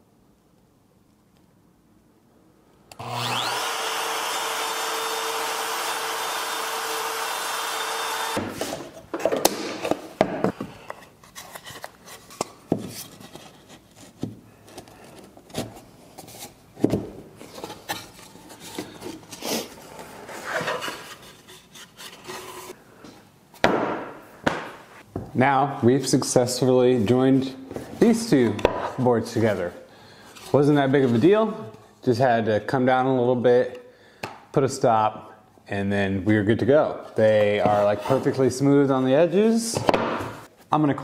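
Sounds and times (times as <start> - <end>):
trim router whining: 2.9 - 8.4.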